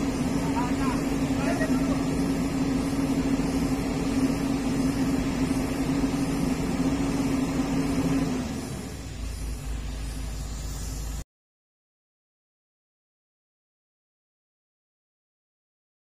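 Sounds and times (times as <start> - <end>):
excavator diesel engine running: 0.0 - 11.2.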